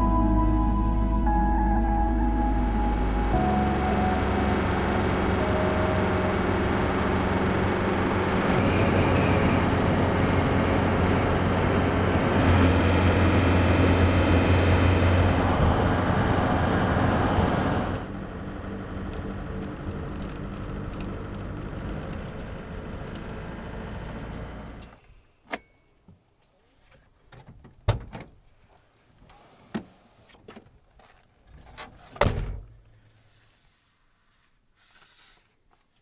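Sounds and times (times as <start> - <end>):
van engine running: 0.0 - 24.9
knocks and clunks: 27.3 - 28.4.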